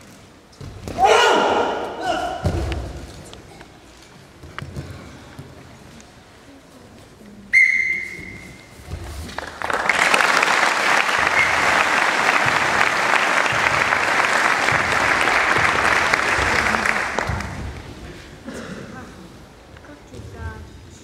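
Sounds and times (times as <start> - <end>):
high whistle blast: 7.5 - 8.6
audience applause: 9.4 - 17.8.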